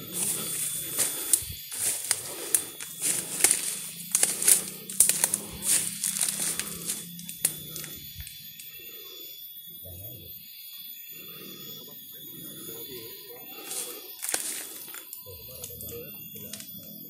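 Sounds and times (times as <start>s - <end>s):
twigs and leaves crunching underfoot: 0.0s - 8.4s, 13.6s - 15.1s.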